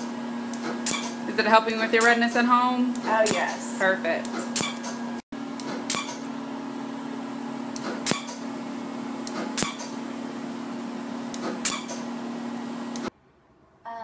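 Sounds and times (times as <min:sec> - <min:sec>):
laser unit low hum: 0:00.0 - 0:13.1
laser firing sharp snaps: 0:03.0 - 0:03.6, 0:04.3 - 0:05.0, 0:07.8 - 0:08.4, 0:09.3 - 0:10.0.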